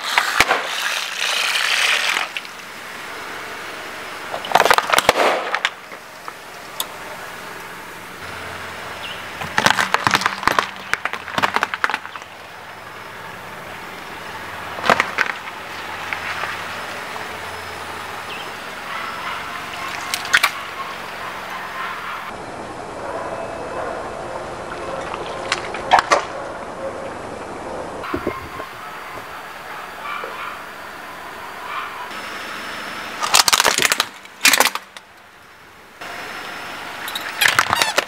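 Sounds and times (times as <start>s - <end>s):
car tyre crushing objects: 0.0s - 2.6s, 4.3s - 6.4s, 9.0s - 12.9s, 14.7s - 17.0s, 33.1s - 35.2s, 37.2s - 38.0s.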